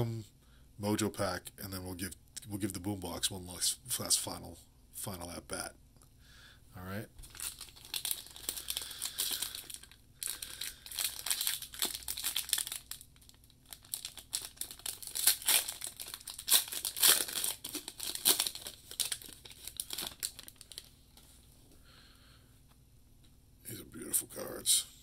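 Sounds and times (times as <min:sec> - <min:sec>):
foil wrapper crinkling: 0:07.2 - 0:20.9.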